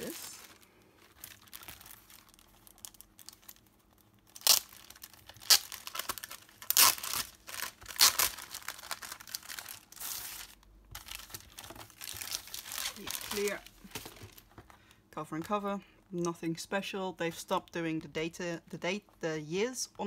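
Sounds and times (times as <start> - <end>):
plastic cover crinkling: 0.0 - 14.6.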